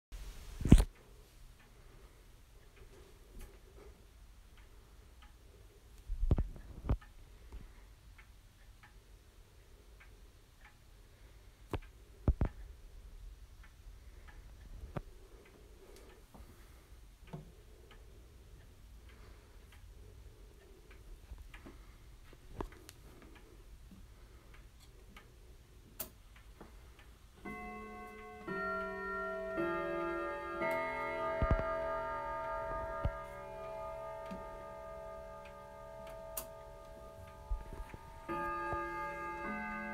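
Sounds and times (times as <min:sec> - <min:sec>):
clock ticking: 0:00.9 - 0:39.9
clock chime notes: 0:27.4 - 0:39.9.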